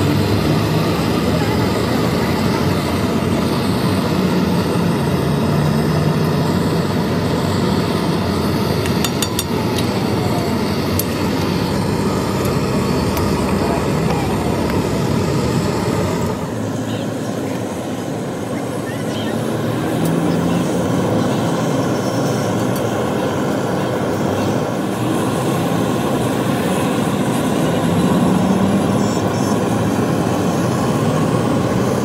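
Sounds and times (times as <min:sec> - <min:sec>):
mechanical rumble with low hum: 0:00.0 - 0:32.0.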